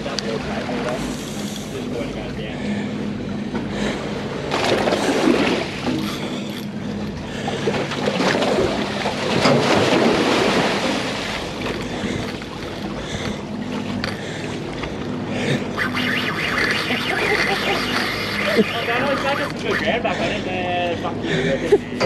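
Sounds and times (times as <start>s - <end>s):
boat machinery humming: 0.0s - 22.0s
water splashing: 4.5s - 20.2s.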